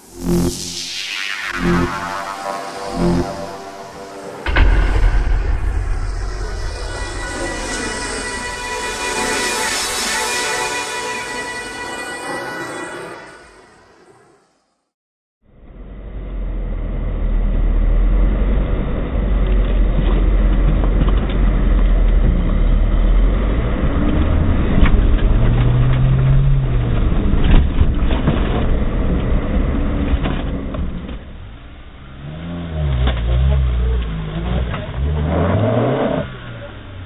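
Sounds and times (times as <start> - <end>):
engine revving up and down: 0.0 - 11.8, 22.1 - 30.4, 32.0 - 37.0
off-road vehicle engine under load: 15.5 - 37.0.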